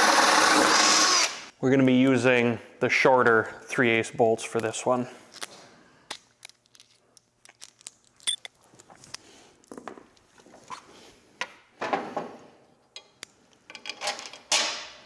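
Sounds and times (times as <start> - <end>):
small metal hardware clinking: 6.1 - 9.3.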